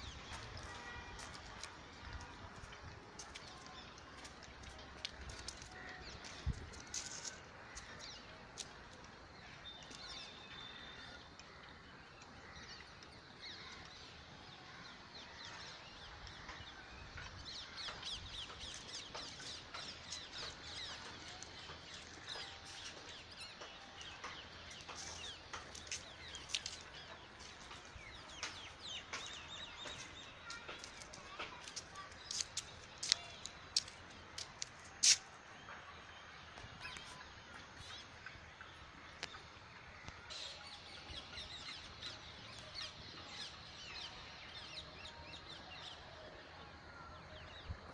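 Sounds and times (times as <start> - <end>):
small birds chirping: 15.7 - 35.8.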